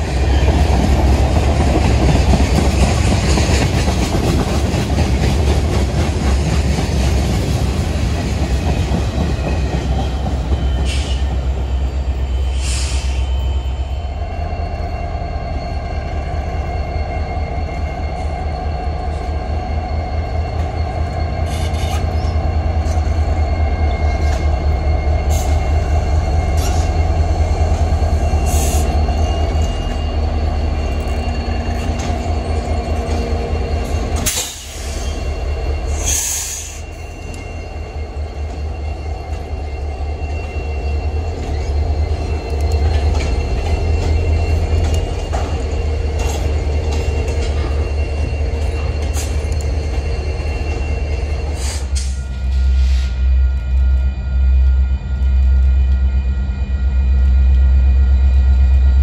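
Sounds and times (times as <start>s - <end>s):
diesel locomotives rumbling: 0.0s - 59.0s
wheels clicking on rails: 20.2s - 59.0s.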